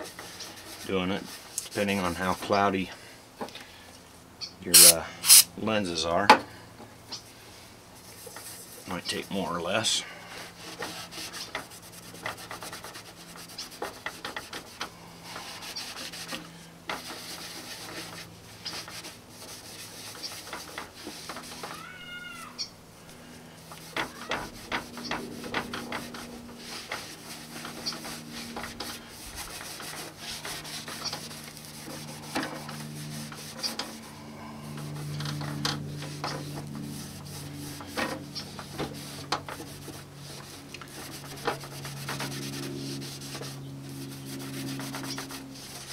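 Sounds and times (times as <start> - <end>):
rag scrubbing a plastic headlight: 4.8 - 5.4, 10.6 - 21.8, 23.7 - 34.2, 34.8 - 45.9.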